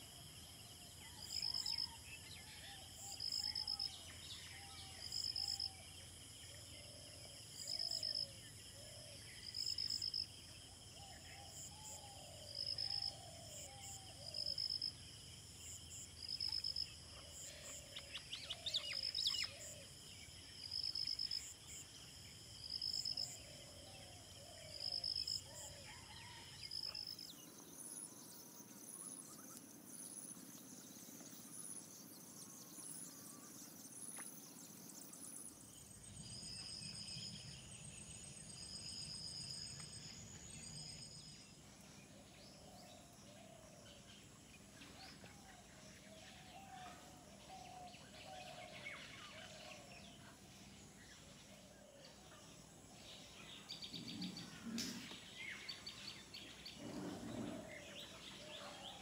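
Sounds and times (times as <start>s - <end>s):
insect chirping: 0.0s - 59.0s
low wavering animal calls: 56.7s - 59.0s.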